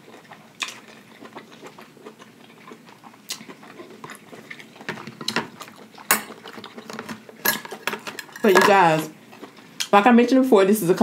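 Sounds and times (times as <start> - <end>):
chewing and lip smacking: 0.0 - 7.4.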